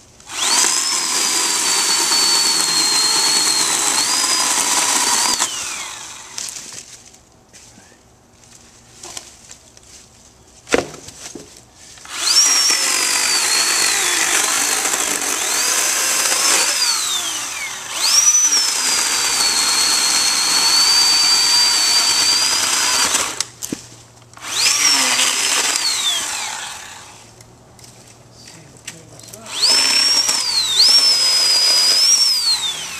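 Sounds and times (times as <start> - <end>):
electric chainsaw cutting log: 0.2 - 6.6, 12.0 - 23.6, 24.4 - 27.3, 29.5 - 32.9.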